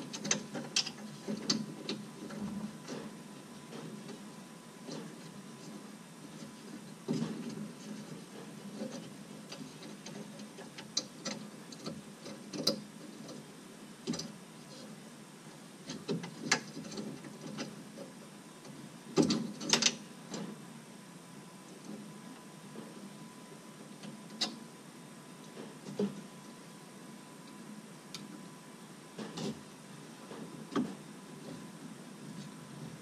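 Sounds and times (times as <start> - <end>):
clicks and knocks of roof linkage: 0.1 - 3.0, 8.7 - 13.4, 14.0 - 14.3, 19.2 - 20.5.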